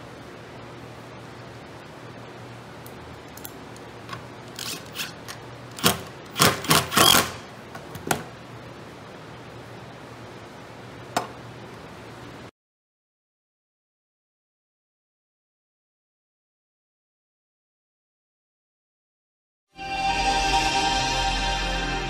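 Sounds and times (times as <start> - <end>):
clicks and clatter of parts: 3.3 - 8.2
cordless driver bursts: 4.6 - 7.5.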